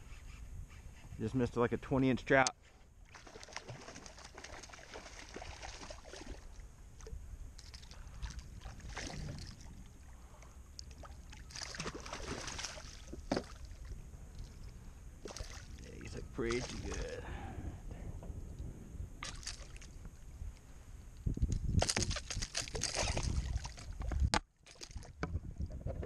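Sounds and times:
water sloshing against kayak hull: 3.0 - 17.2.

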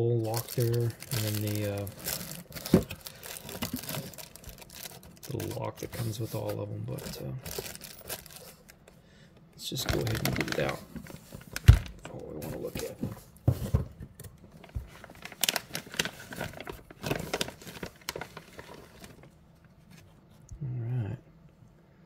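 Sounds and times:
plastic bag crinkling: 0.0 - 8.9, 9.8 - 13.0, 14.5 - 19.3.

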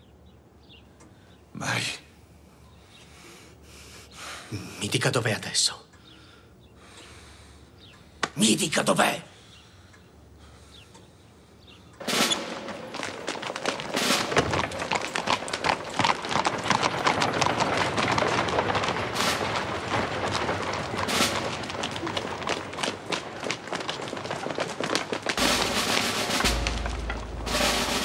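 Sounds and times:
carriage wheels rattling: 12.0 - 28.0
footsteps of people running: 12.0 - 28.0
horse hooves on cobblestones: 12.0 - 28.0.

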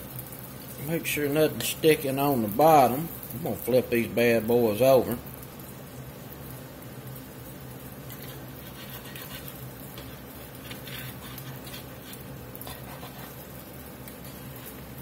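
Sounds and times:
gravy simmering in a skillet: 0.0 - 15.0
metal fork scraping a pan: 8.1 - 13.5, 14.1 - 14.8.

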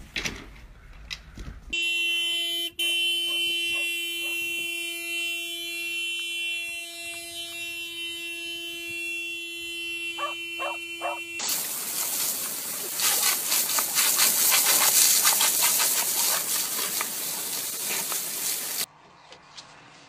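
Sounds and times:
car horn long blast: 1.7 - 11.5.

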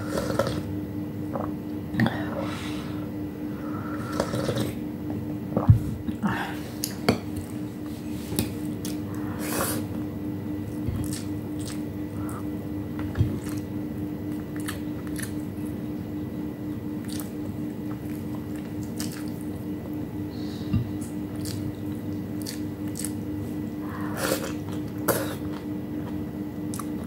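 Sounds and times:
chewing and wet mouth noises: 10.7 - 13.7, 14.3 - 15.8, 16.7 - 20.0, 20.9 - 27.0.

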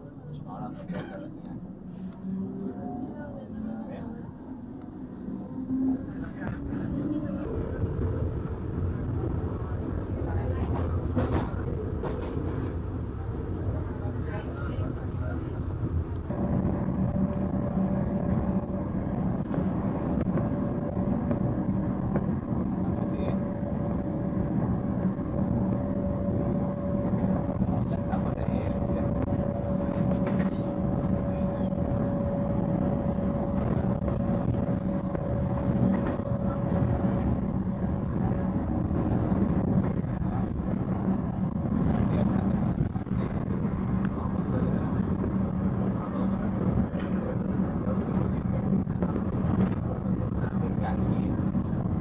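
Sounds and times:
train wheels rumbling on rails: 4.8 - 52.0
thin steady whine: 14.3 - 52.0.

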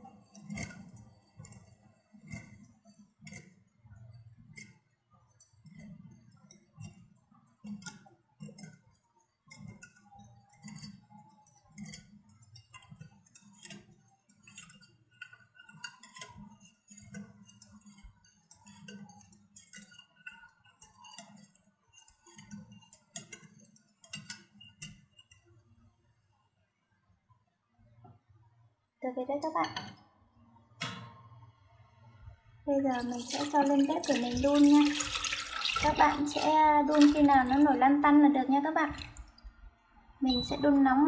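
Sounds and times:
whisk ticking against bowl: 7.6 - 25.4, 32.9 - 38.2.

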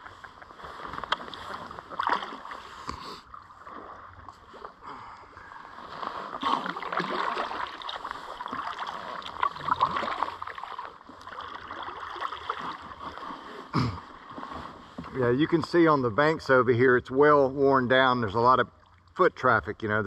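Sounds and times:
kayak paddle splashing water: 0.0 - 15.8.

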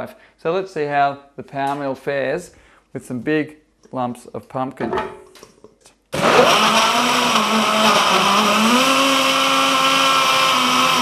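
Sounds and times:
blender motor running: 6.2 - 11.0.

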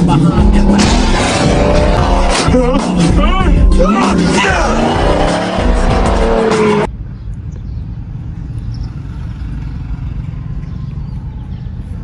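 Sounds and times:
film soundtrack music: 0.0 - 6.9.

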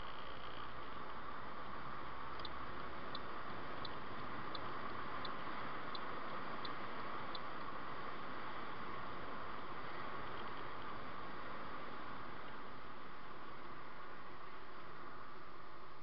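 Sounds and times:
light high ticking: 0.0 - 9.2
car road and engine noise: 0.0 - 16.0.

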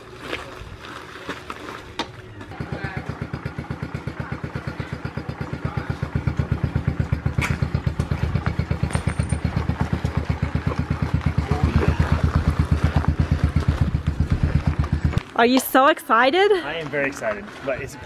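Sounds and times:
dirt bike engine idling: 2.2 - 15.2.

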